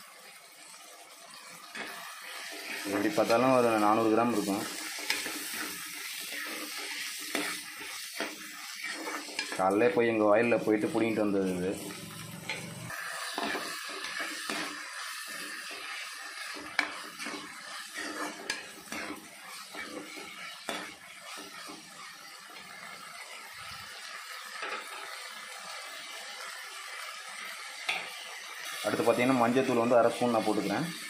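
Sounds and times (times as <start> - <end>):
vegetables sizzling in oil: 0.0 - 31.0
metal spatula scraping a pan: 1.4 - 23.8.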